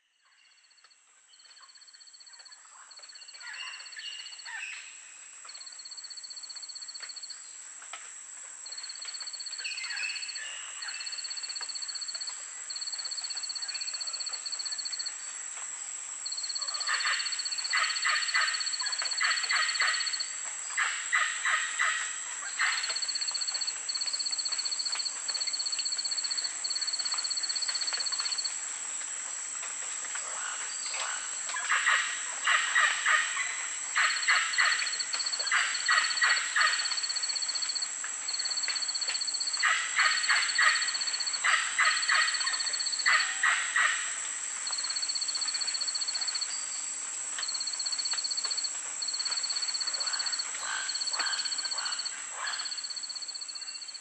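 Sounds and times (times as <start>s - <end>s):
high insect whine: 8.6s - 21.6s, 22.6s - 29.7s, 33.0s - 54.0s
pulsed insect trill: 34.0s - 43.2s, 44.7s - 46.6s, 47.4s - 54.0s.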